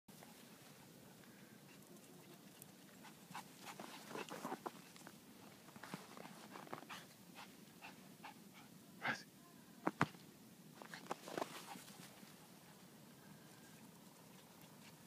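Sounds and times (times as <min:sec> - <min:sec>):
footsteps crunching in snow: 0:10.8 - 0:12.3.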